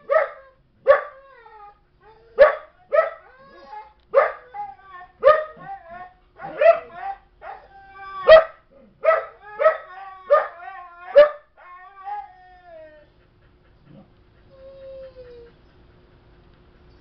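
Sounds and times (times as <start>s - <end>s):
dog barking: 0.0s - 1.2s, 2.4s - 3.2s, 4.2s - 4.5s, 5.2s - 5.8s, 6.4s - 11.5s
dog whining: 1.1s - 2.5s, 3.2s - 15.9s.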